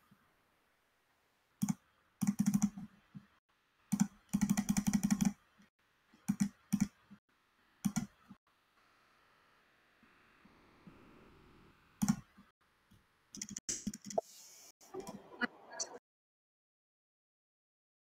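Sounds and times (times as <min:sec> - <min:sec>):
computer keyboard typing: 0:01.6 - 0:02.9, 0:03.9 - 0:05.4, 0:06.3 - 0:07.0, 0:07.8 - 0:08.2, 0:12.0 - 0:12.2, 0:13.4 - 0:14.2.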